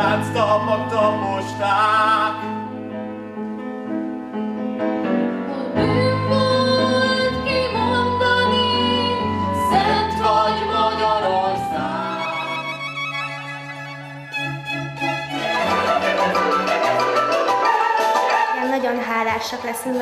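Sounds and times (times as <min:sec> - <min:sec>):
instrumental accompaniment: 0:00.0 - 0:20.0
woman singing: 0:05.5 - 0:12.6.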